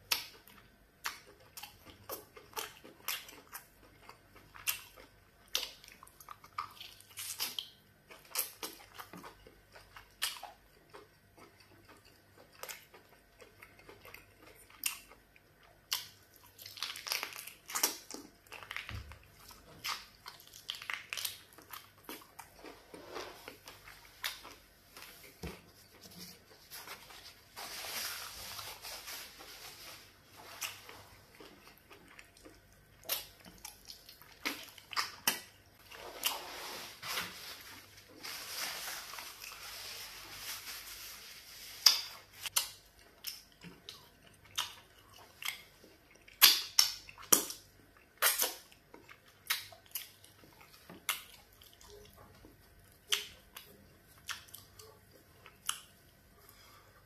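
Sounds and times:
person chewing food: 0.0 - 38.2, 41.8 - 57.0
tissue rustling across face: 24.8 - 31.2, 36.0 - 42.5.

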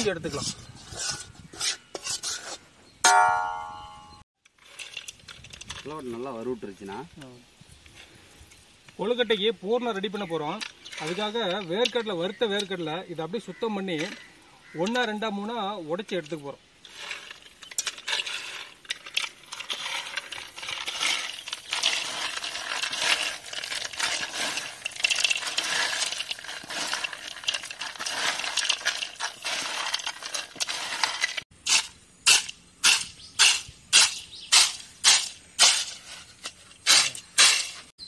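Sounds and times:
nuts swishing in a bowl: 16.8 - 31.9
peanut skins crackling: 16.9 - 35.7
nuts clicking against metal bowl: 16.9 - 36.0.

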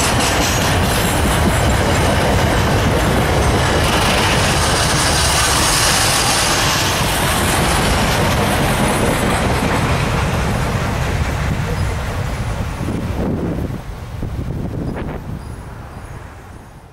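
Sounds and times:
train wheels rumbling on rails: 0.0 - 16.9.

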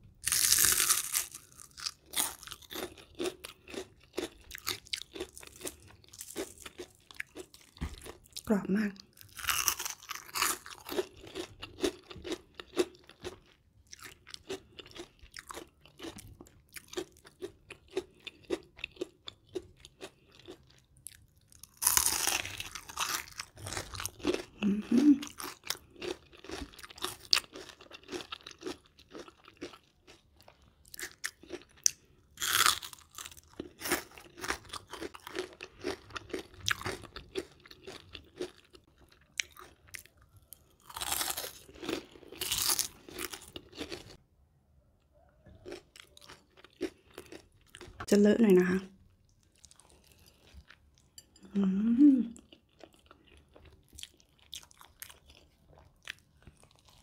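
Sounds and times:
crunchy chewing of onion rings: 0.0 - 44.2, 45.0 - 48.1, 49.1 - 51.5, 52.3 - 57.0.

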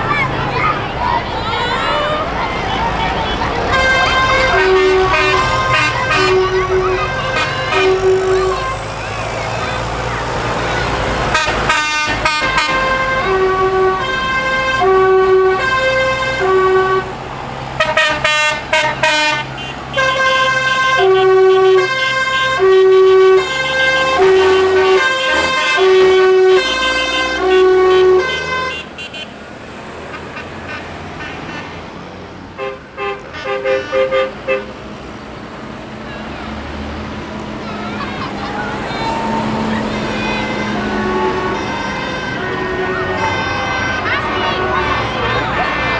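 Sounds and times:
tractor engines running: 0.0 - 45.9
musical vehicle horn tune: 3.2 - 9.0, 11.3 - 17.2, 17.8 - 29.3, 32.6 - 34.8, 38.1 - 45.9.

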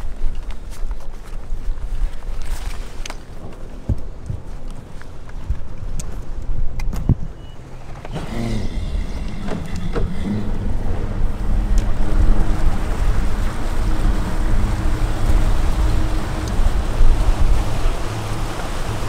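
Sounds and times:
wind buffeting microphone: 0.0 - 19.0
outboard motor running: 7.7 - 19.0.

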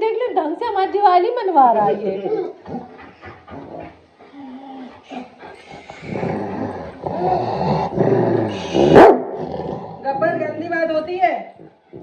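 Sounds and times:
dog growling: 0.7 - 12.0.

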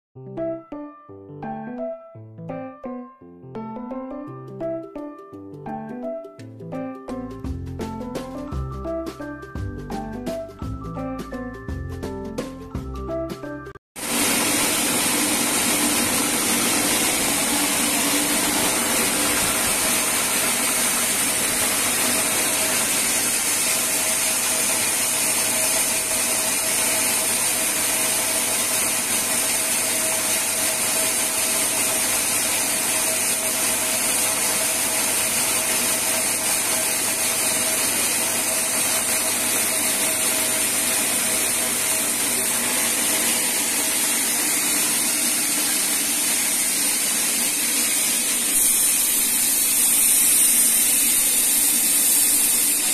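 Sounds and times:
sawmill machinery humming: 14.0 - 52.9.

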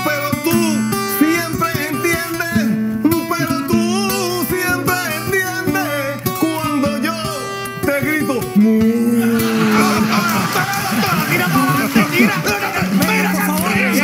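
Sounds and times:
man singing: 0.0 - 14.0
plucked string accompaniment: 0.0 - 14.0
audience applause: 9.2 - 14.0.

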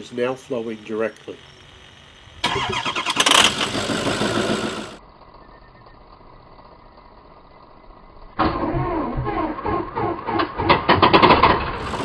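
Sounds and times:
diesel engine starter cranking: 0.5 - 7.0, 8.2 - 12.0.

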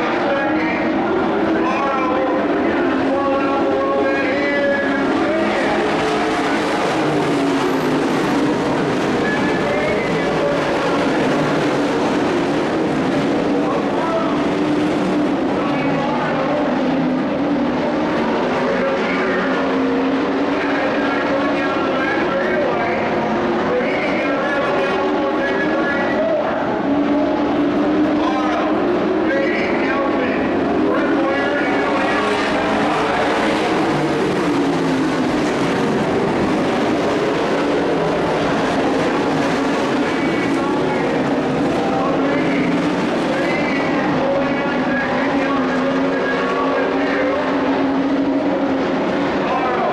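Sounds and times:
racing truck engines droning: 0.0 - 49.9.

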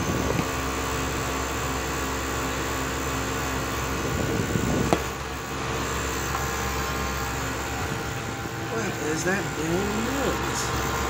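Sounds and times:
unbalanced fan humming: 0.0 - 11.0.

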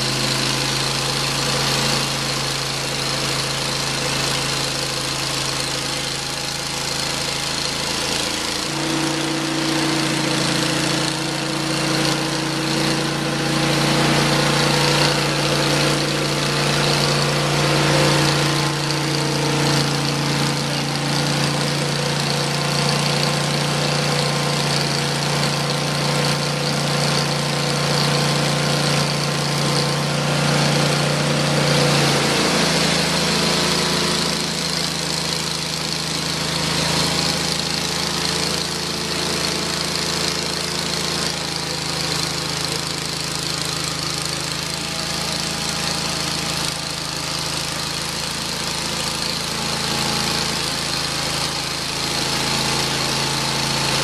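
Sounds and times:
sawmill engine running: 0.0 - 54.0.

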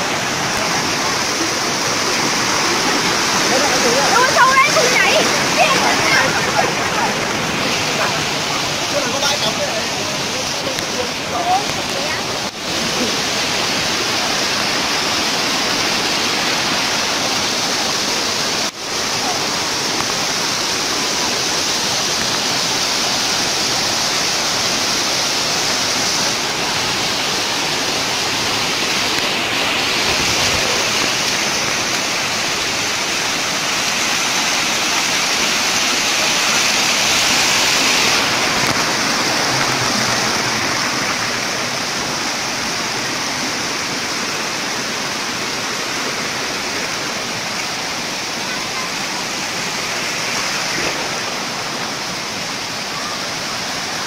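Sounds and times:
waterfall rushing over rocks: 0.0 - 54.0.

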